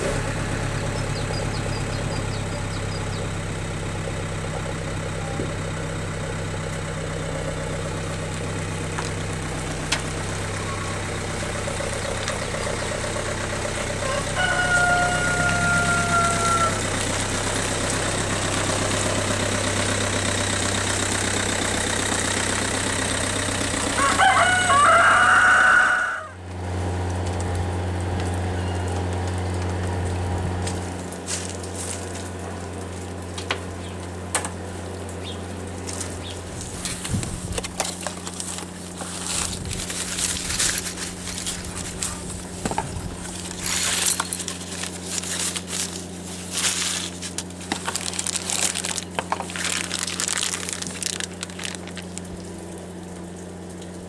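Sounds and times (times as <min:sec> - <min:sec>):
engine idling: 0:00.0 - 0:54.0
rooster crowing: 0:13.9 - 0:17.0, 0:23.9 - 0:26.4
plastic bag crackling: 0:35.8 - 0:53.4.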